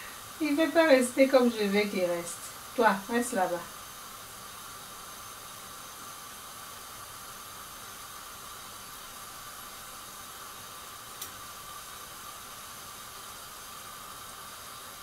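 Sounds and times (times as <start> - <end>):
oil sizzling with frying dough: 0.0 - 15.0
sharp click: 11.2 - 11.4.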